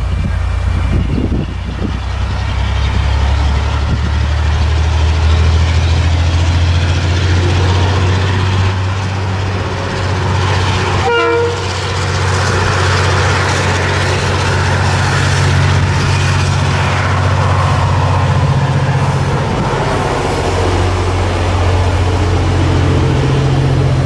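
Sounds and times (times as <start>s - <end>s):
locomotive engine rumble: 0.0s - 24.0s
train horn toot: 11.0s - 11.9s.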